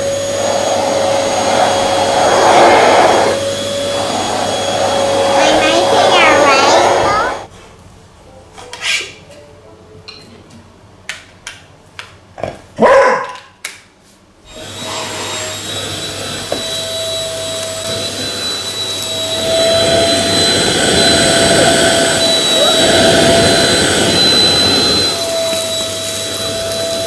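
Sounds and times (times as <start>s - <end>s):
vacuum motor whine: 0.0s - 7.5s, 14.5s - 27.0s
dog barking: 12.8s - 13.5s.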